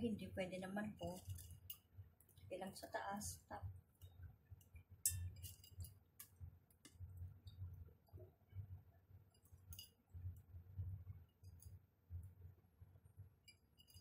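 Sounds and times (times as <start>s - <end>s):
clicks and clinks of bowl and pot: 4.7s - 7.6s, 9.3s - 10.0s, 13.4s - 14.0s.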